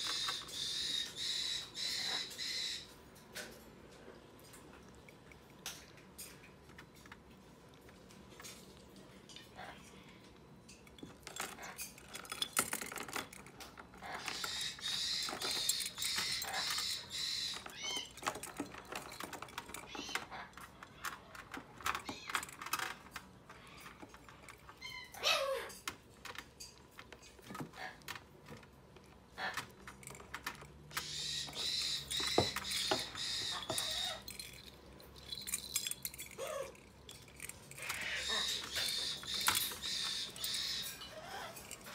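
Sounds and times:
parrot chicks begging calls: 0.0s - 3.0s, 14.0s - 18.2s, 30.9s - 34.3s, 37.8s - 41.9s.

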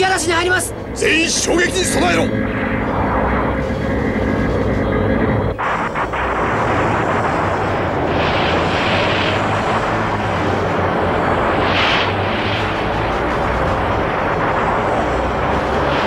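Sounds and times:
loud steady rushing noise: 0.0s - 16.0s
low hum: 0.0s - 16.0s.

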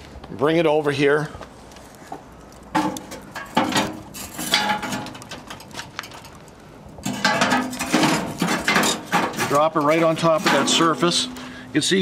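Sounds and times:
grill grate clanking on metal: 2.7s - 6.3s, 7.0s - 11.6s.

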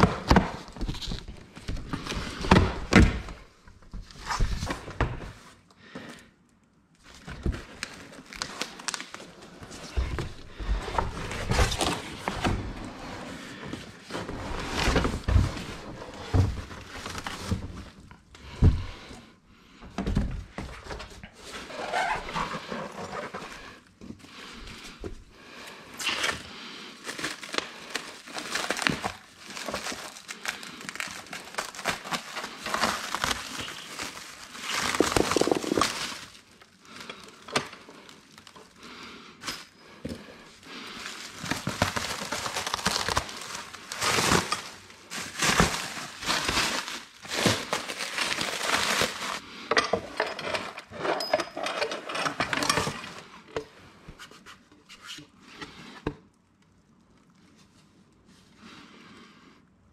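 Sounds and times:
plastic wrap crinkling: 7.0s - 18.3s, 25.9s - 38.8s, 40.4s - 49.5s.

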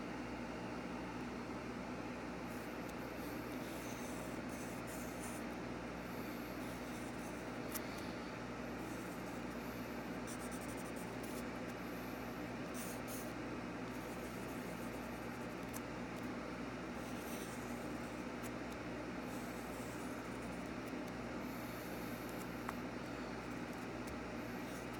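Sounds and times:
pencil scratching on paper: 2.5s - 5.5s, 6.1s - 8.0s, 8.8s - 13.3s, 13.9s - 15.8s, 17.0s - 22.6s, 23.4s - 24.9s.

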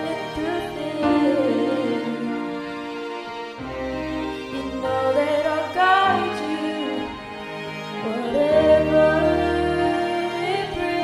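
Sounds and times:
person singing: 0.0s - 2.8s, 4.5s - 7.3s, 7.9s - 11.0s
instrumental accompaniment: 0.0s - 11.0s.

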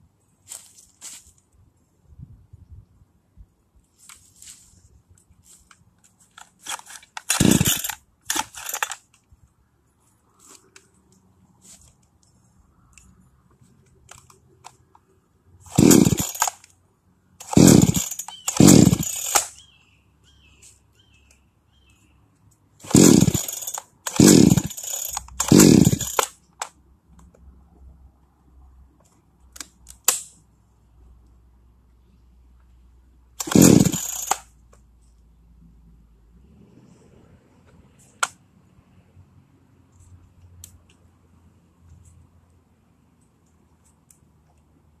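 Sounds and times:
chainsaw starter cord pulls: 6.3s - 9.2s, 15.7s - 16.7s, 17.4s - 19.6s, 22.8s - 26.7s, 33.4s - 34.5s.

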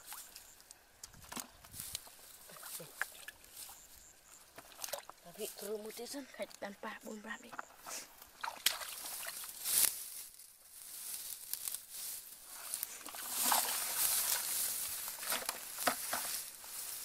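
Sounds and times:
dry grass rustling: 0.0s - 17.0s
bare feet splashing in mud: 4.6s - 6.0s, 8.2s - 10.0s, 12.9s - 17.0s.

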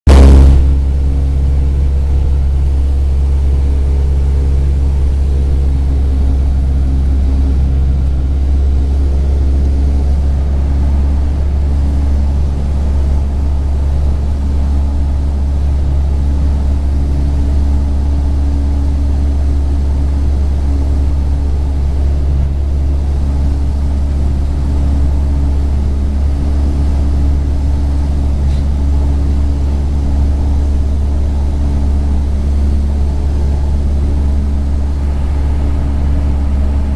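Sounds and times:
propeller plane engine droning: 0.0s - 36.9s.

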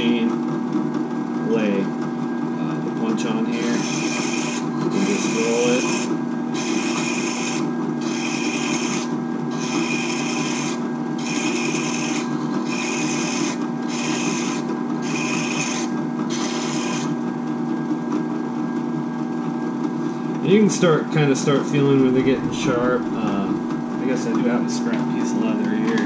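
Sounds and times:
drill press motor humming: 0.9s - 26.0s
metal grinding on abrasive: 3.5s - 17.2s, 21.8s - 24.9s.

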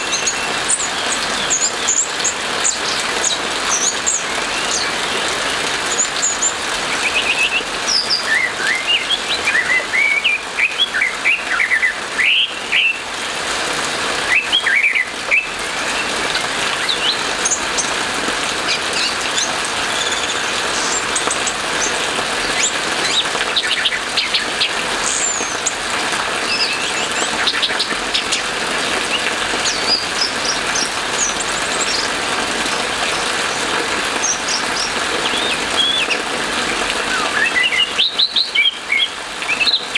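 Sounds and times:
rain hissing: 0.0s - 39.9s
thrush singing whistled notes: 5.9s - 13.0s, 14.3s - 16.1s, 18.7s - 25.7s, 34.2s - 36.2s, 37.1s - 39.9s.

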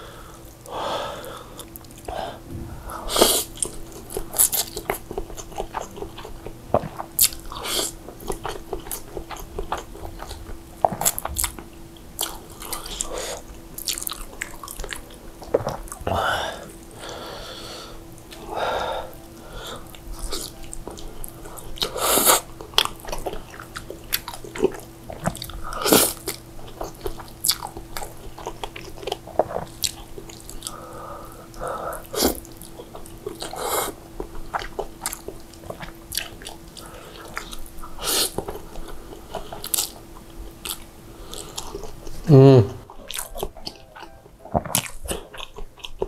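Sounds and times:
wet chewing and mouth clicks: 3.2s - 16.1s, 19.8s - 30.8s, 34.2s - 46.0s.

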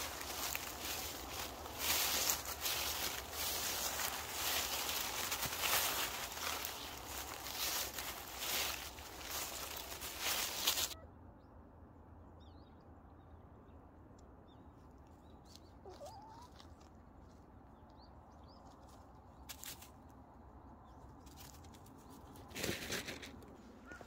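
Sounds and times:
paws crackling dry leaves: 0.0s - 11.0s, 18.7s - 20.0s, 21.2s - 24.0s
small birds chirping: 0.0s - 11.0s, 12.4s - 22.5s.

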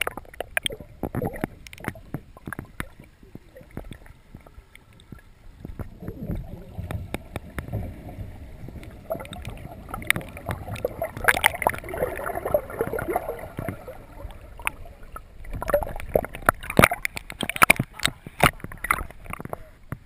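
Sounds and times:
muffled water gurgling: 0.0s - 20.0s
clicks and knocks: 15.5s - 20.0s.

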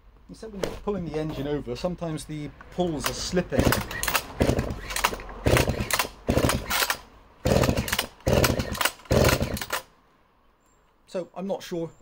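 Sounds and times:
chainsaw recoil starter pulls: 2.9s - 9.9s.

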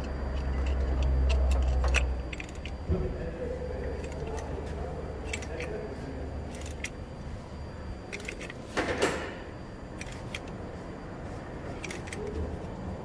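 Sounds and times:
wrench metallic clicks: 0.0s - 2.8s, 3.9s - 4.5s, 5.2s - 5.7s, 6.5s - 7.0s, 8.1s - 9.2s, 10.0s - 10.6s, 11.8s - 12.4s.

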